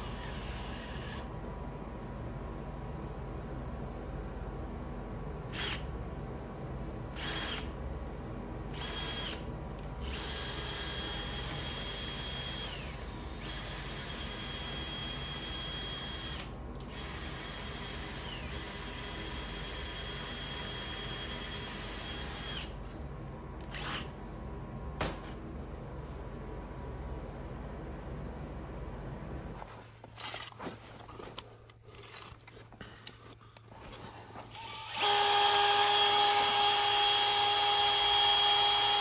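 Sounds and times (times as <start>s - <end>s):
cordless drill motor whine: 0.0s - 1.3s, 5.5s - 5.9s, 7.2s - 7.8s, 8.7s - 22.8s, 23.7s - 24.1s, 34.5s - 39.0s.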